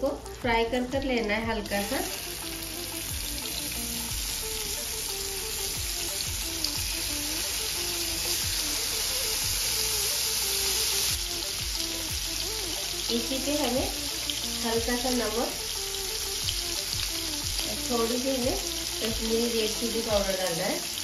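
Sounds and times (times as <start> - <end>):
food sizzling in oil: 0.0 - 21.0.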